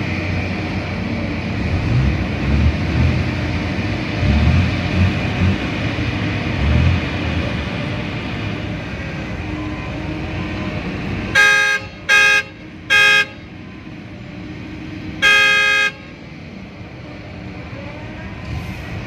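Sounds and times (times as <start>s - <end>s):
vehicle horn blasts: 11.3s - 13.4s, 15.2s - 16.1s.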